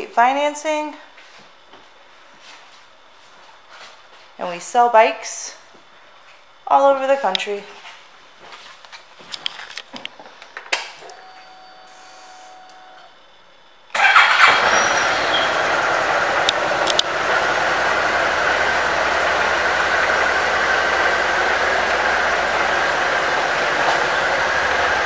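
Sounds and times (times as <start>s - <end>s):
motorcycle engine starting and idling: 13.9s - 25.0s.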